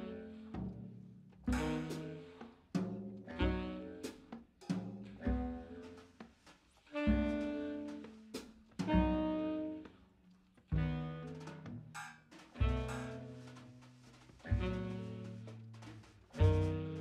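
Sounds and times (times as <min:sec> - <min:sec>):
jazz orchestra accented chords: 0:01.5 - 0:02.4, 0:06.9 - 0:09.9, 0:10.8 - 0:17.0.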